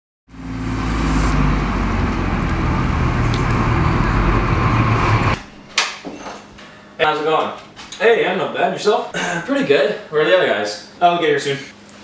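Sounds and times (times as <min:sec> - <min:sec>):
bus engine passing: 0:00.3 - 0:05.4.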